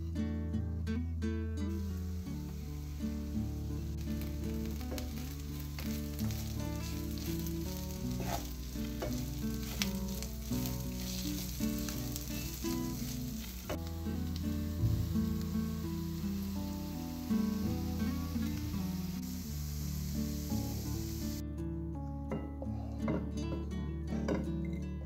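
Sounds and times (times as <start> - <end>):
background music: 0.0 - 25.0
meat and onions sizzling: 1.7 - 21.4.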